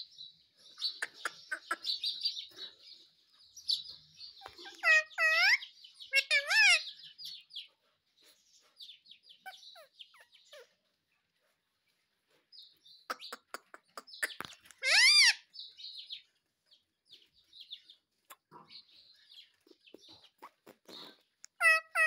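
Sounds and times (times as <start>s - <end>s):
parakeet chattering: 0.8s - 2.3s, 4.4s - 7.0s, 13.0s - 15.5s, 19.9s - 22.0s
parakeet squawk: 0.9s - 2.1s, 4.4s - 7.0s, 13.1s - 15.5s, 21.6s - 22.0s
parakeet sharp clicks: 1.0s - 1.8s, 13.1s - 14.9s.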